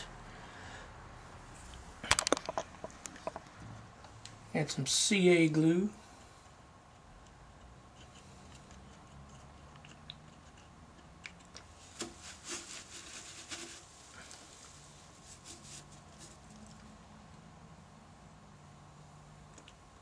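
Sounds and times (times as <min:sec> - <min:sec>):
faint low hum: 0:00.0 - 0:20.0
soft crackling and rustling: 0:06.0 - 0:17.0.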